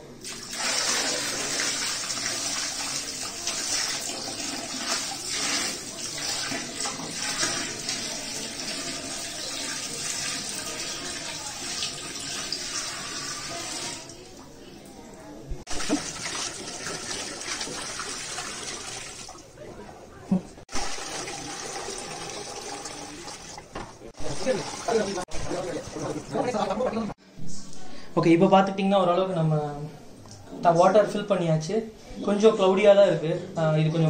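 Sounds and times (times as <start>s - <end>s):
water splashing into aquarium: 15.7s - 19.5s.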